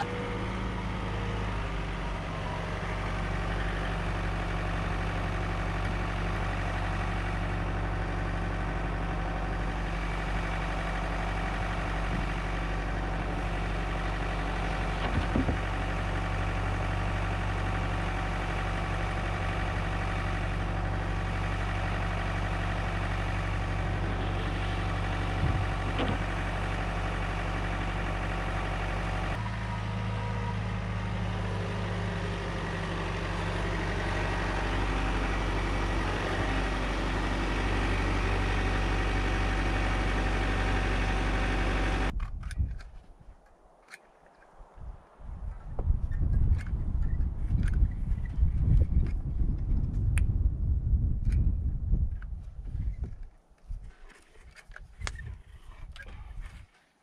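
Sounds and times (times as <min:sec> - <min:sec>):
diesel tractor engine idling: 0:00.0 - 0:42.2.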